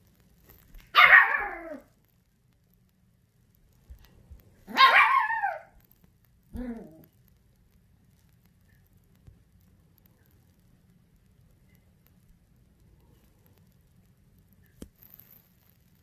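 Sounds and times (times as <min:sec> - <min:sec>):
small dog barking: 0:00.9 - 0:01.9, 0:04.7 - 0:05.8.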